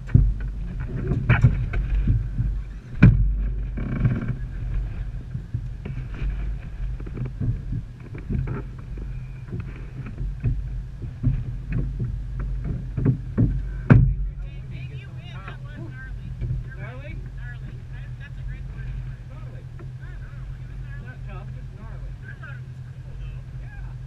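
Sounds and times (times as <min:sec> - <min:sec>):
sharp knocks and rattles: 0:00.0 - 0:14.6
off-road vehicle engine idling: 0:00.0 - 0:24.0.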